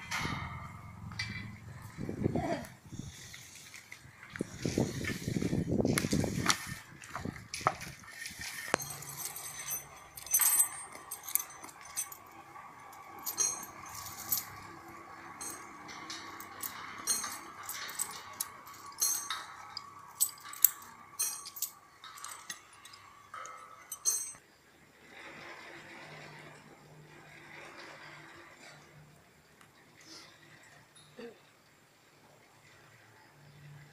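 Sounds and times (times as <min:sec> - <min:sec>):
metal fittings clinking and rattling: 0:02.9 - 0:24.4.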